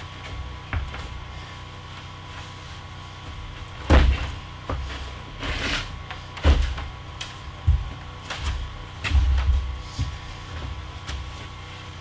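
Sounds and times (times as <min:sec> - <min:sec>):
faint electrical hum: 0:00.0 - 0:12.0
wood scraping: 0:00.1 - 0:11.9
wooden frame thumping on subfloor: 0:03.2 - 0:11.6.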